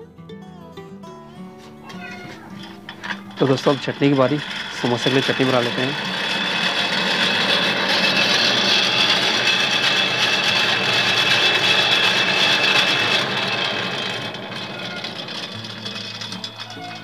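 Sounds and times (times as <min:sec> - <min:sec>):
hand-cranked blower whirring: 0:01.4 - 0:17.0.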